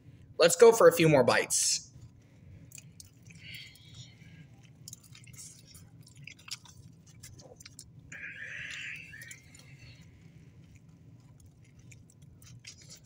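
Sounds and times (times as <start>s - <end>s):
person chewing food: 1.9s - 13.0s
small mouth clicks: 4.8s - 10.1s.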